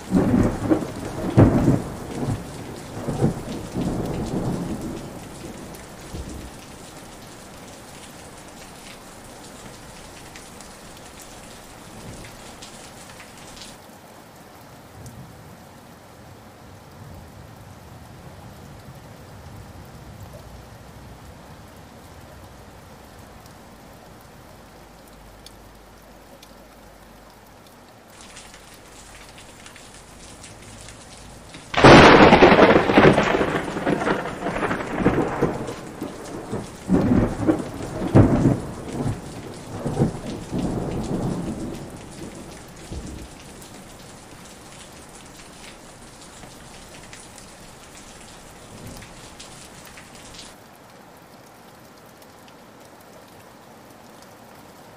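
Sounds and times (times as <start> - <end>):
thunderclap rumbling: 0.0 - 7.2, 28.2 - 50.5
steady rain: 0.0 - 54.9.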